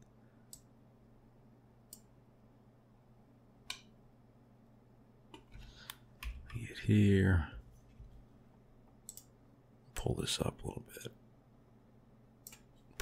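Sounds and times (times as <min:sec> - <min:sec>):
faint low hum: 0:00.0 - 0:13.0
computer mouse and keyboard clicks: 0:12.4 - 0:13.0.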